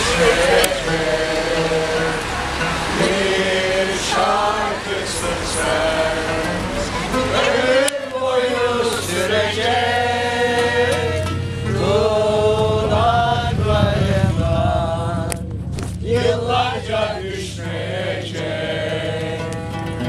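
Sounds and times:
group singing in unison: 0.0s - 20.0s.

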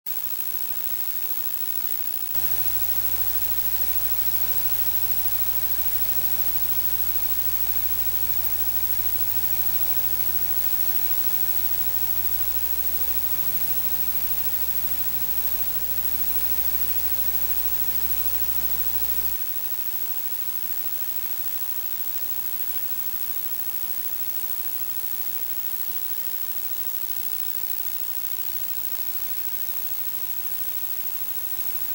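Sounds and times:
constant hiss: 2.1s - 20.7s.

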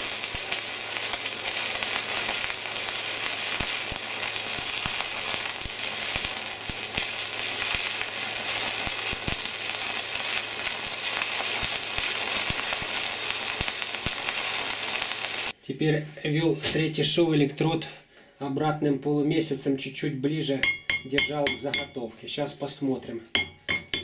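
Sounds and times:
welding arc crackling hiss: 0.0s - 15.6s.

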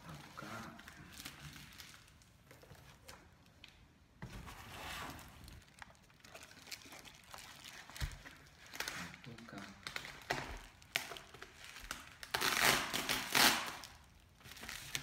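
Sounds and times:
plastic wrap crinkling and rustling: 0.0s - 15.0s
scissors cutting packing tape: 12.3s - 13.8s.

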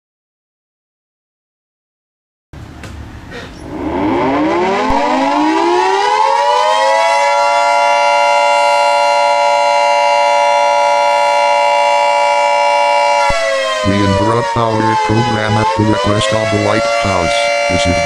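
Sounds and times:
civil defense siren: 3.6s - 18.0s.

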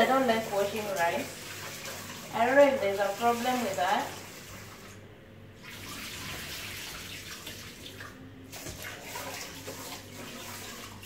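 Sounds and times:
water splashing in pot: 5.6s - 11.0s.

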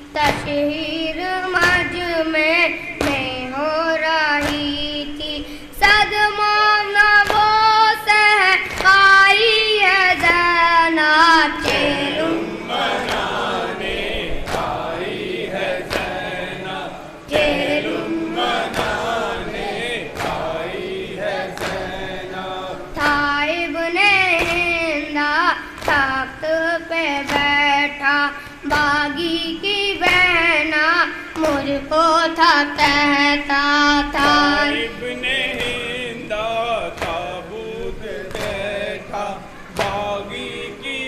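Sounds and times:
boy singing solo: 0.0s - 11.8s, 23.0s - 34.8s
rhythmic chest-beating slaps: 0.0s - 41.0s
men chanting together: 10.1s - 26.2s, 31.4s - 41.0s.

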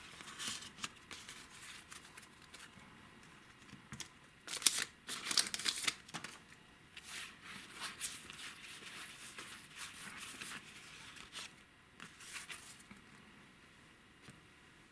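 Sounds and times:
wrapper tearing and crinkling: 4.5s - 6.4s
trading cards rustling and sliding: 7.0s - 13.0s.

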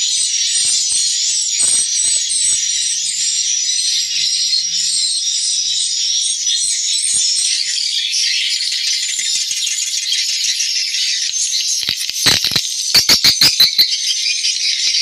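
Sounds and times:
swiftlets twittering: 11.4s - 13.9s.

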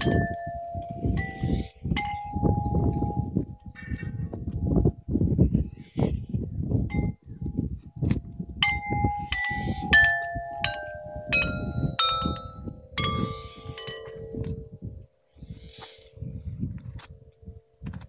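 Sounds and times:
metal tube chimes ringing: 0.0s - 4.8s, 6.9s - 7.5s, 8.6s - 14.8s.

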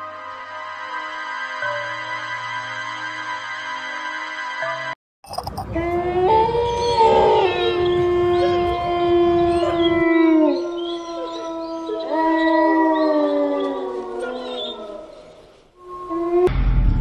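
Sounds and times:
dogs howling together: 5.8s - 16.5s
low rumble: 16.5s - 17.0s.

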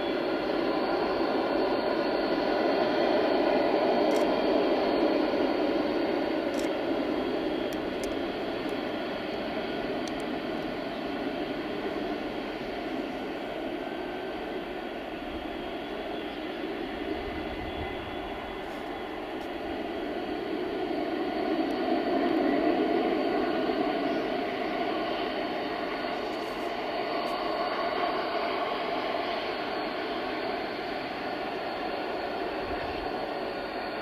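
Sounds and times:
jet engines taxiing: 0.0s - 34.0s.

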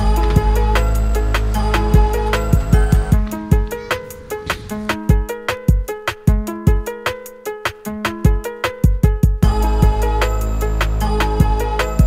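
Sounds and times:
held melodic notes: 0.0s - 7.1s.

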